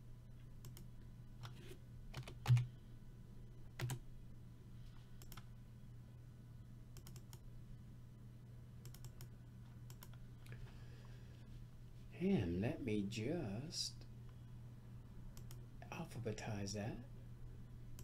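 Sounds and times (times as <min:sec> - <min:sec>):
low steady hum: 0:00.0 - 0:18.0
keyboard typing: 0:00.6 - 0:02.7, 0:03.7 - 0:04.0, 0:05.2 - 0:05.4, 0:07.0 - 0:07.4, 0:08.8 - 0:09.3, 0:09.9 - 0:10.2.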